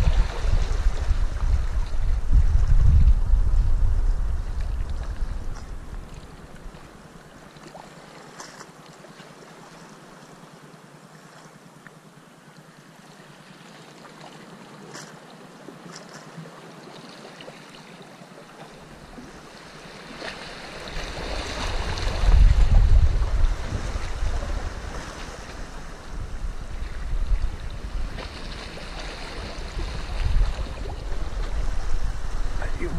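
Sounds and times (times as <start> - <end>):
sea water lapping against rocks: 0.0 - 2.8, 13.9 - 32.9
wind buffeting microphone: 0.0 - 6.9, 20.8 - 32.9
faint ticks: 11.8 - 12.7.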